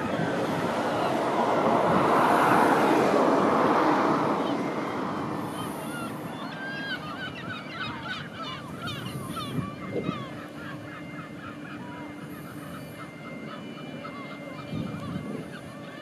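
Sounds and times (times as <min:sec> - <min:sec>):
waterfowl calling: 0:05.4 - 0:16.0.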